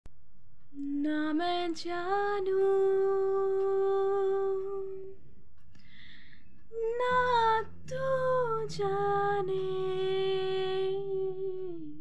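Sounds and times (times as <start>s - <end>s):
woman humming: 2.1s - 5.2s, 6.7s - 12.0s.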